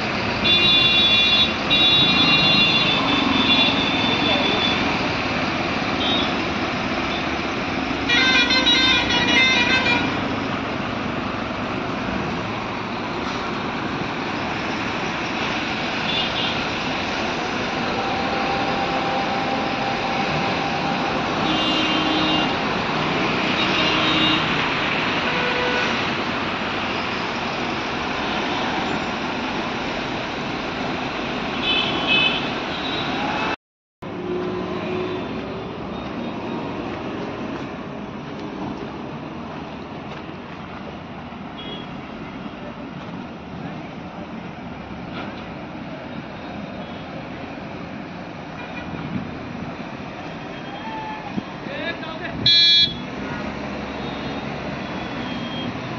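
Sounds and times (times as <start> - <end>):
traffic hum: 0.0 - 55.9
vehicle horn honks: 18.0 - 22.6, 31.6 - 33.1, 52.4 - 53.1.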